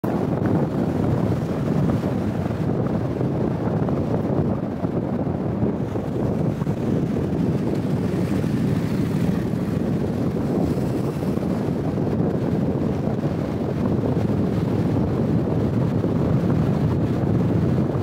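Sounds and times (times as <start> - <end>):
car driving noise: 0.0 - 18.0
wind rumble on microphone: 0.0 - 18.0.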